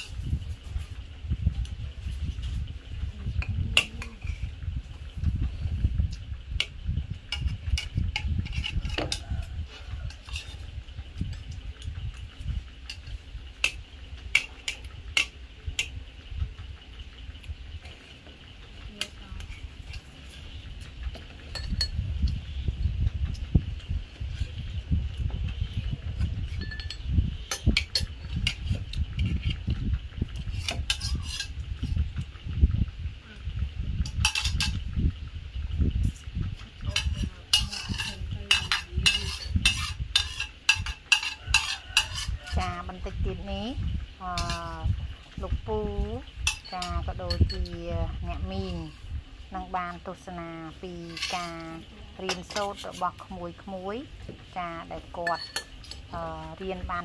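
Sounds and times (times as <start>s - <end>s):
low rumble: 0.0s - 41.2s
utensils clinking against pots: 7.3s - 11.9s, 12.8s - 16.6s, 17.8s - 22.0s, 26.2s - 29.6s, 30.4s - 32.0s, 34.0s - 34.8s, 36.7s - 43.1s, 44.2s - 49.0s, 49.8s - 53.6s, 54.4s - 57.0s
kitchenware clinking: 21.2s - 22.0s, 26.5s - 28.6s, 34.2s - 34.8s, 36.9s - 42.6s, 46.4s - 47.8s, 55.2s - 56.1s.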